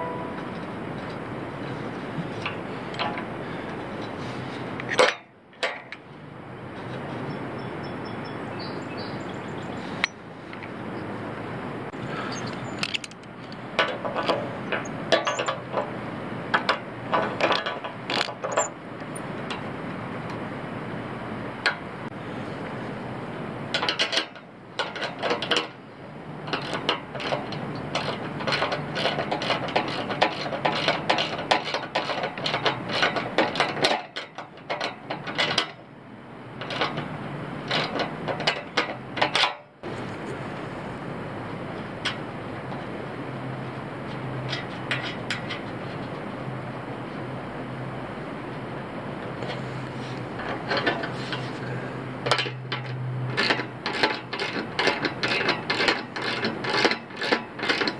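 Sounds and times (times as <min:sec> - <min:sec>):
metal tools clinking: 0:12.3 - 0:15.6.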